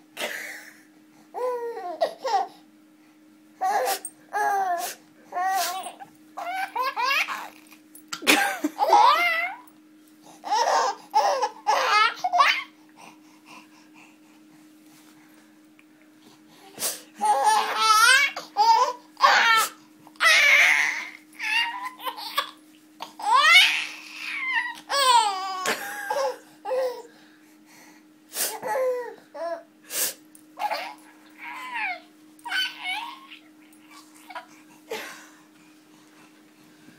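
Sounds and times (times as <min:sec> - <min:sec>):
baby giggling and squealing: 0:05.4 - 0:07.6, 0:10.4 - 0:12.7, 0:17.2 - 0:22.6, 0:30.6 - 0:34.5.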